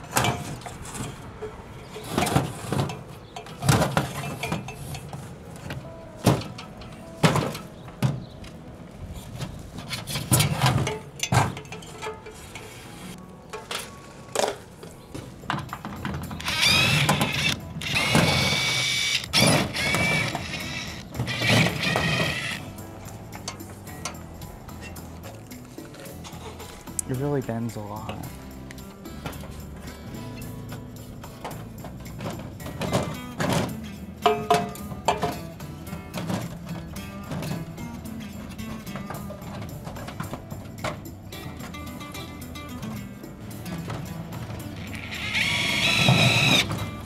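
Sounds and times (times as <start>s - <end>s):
cordless drill motor whine: 16.4s - 22.6s, 45.0s - 46.7s.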